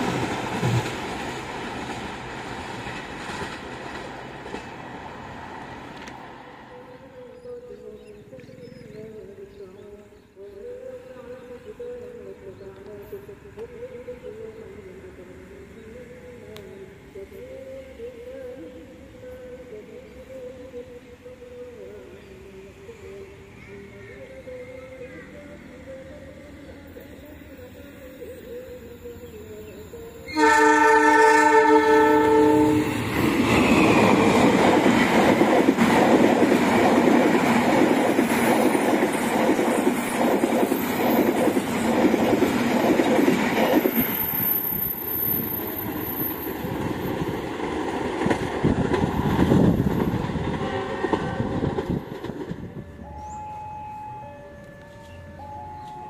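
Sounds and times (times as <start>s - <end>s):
train wheels clattering on rails: 0.0s - 5.0s, 32.8s - 52.8s
locomotive horn blast: 30.3s - 33.1s.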